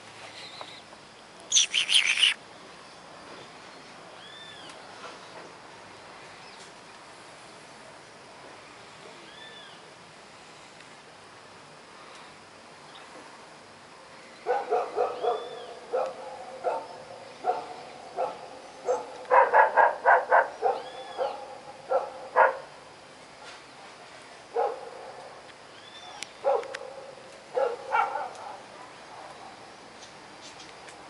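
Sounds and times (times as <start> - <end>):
dog barking: 14.5 - 22.7, 24.6 - 25.0, 26.4 - 29.6.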